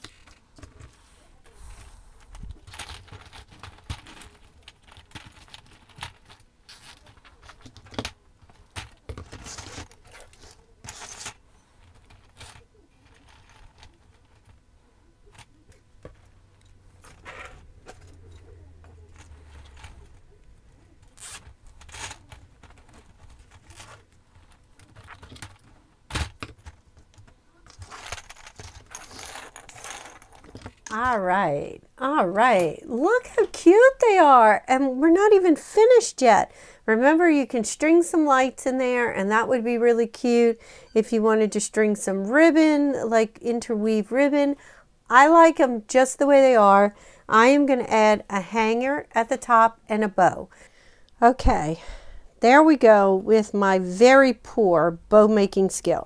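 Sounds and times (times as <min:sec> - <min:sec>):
ornaments clattering and scraping: 0:00.0 - 0:31.3
cable ties zipping: 0:21.1 - 0:24.1.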